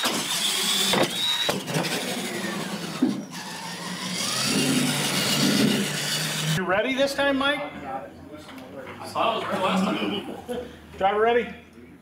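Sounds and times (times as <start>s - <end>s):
electric motor and gears whining: 0.0s - 6.6s
rush of tyres and drivetrain: 0.0s - 6.6s.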